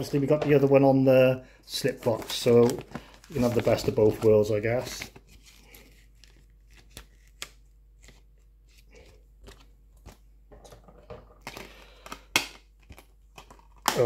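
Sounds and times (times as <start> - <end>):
paper rustling: 2.0 - 10.2.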